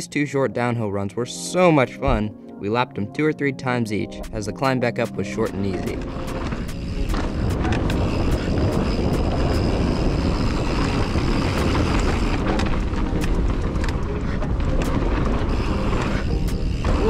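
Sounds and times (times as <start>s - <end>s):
bike clicks and rattles: 5.2s - 17.0s
wind rush on microphone: 5.8s - 17.0s.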